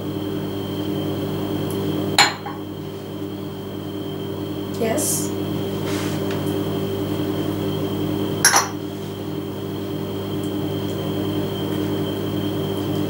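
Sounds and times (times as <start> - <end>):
low hum with high whine: 0.0 - 13.0
cup set down on table: 8.4 - 8.8.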